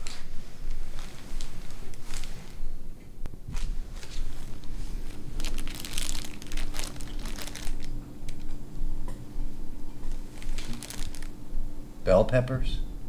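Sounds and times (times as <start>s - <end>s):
plastic bag crinkling: 0.0s - 2.6s, 3.5s - 8.5s, 10.1s - 11.4s
faint steady hum: 0.0s - 13.0s.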